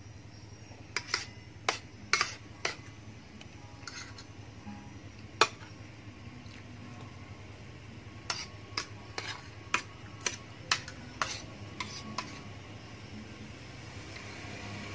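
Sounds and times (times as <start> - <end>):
cutlery clinking on a plate: 1.0 - 2.9, 8.3 - 12.4.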